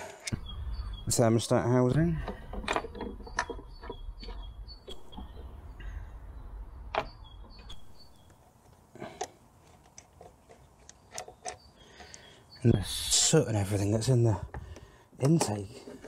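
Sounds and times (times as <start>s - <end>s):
plastic parts clicking and knocking: 2.1s - 5.3s, 6.9s - 12.4s, 14.4s - 16.0s.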